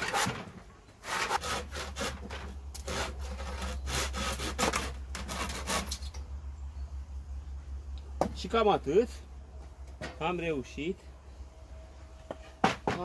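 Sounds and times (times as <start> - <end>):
handsaw cutting wood: 0.0 - 6.1.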